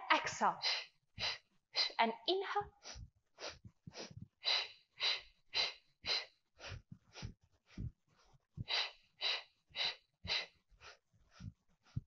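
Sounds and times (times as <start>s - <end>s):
woman's sharp breaths: 0.6s - 2.0s, 2.7s - 12.0s
soft low thuds: 3.0s - 4.4s, 6.7s - 8.0s.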